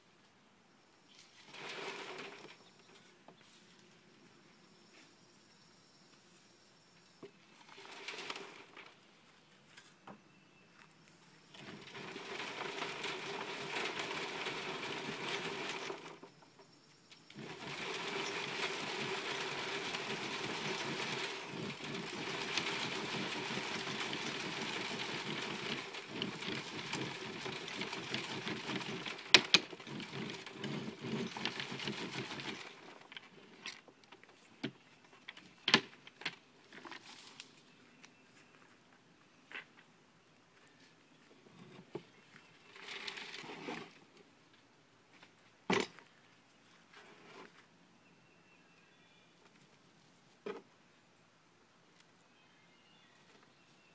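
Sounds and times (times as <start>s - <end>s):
wooden box scraping on rails: 1.3s - 3.5s, 7.5s - 9.0s, 11.4s - 16.6s, 17.2s - 37.0s, 41.5s - 44.1s, 46.9s - 47.6s
compost shaking on screen: 1.4s - 2.9s, 7.6s - 8.9s, 11.5s - 16.4s, 17.3s - 33.6s.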